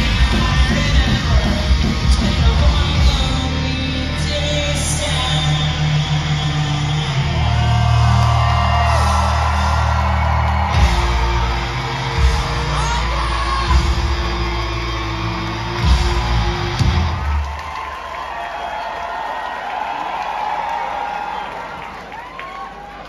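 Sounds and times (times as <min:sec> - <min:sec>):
person singing: 0:00.0 - 0:08.3
live rock band playing: 0:00.0 - 0:17.6
crowd yelling: 0:00.0 - 0:23.0.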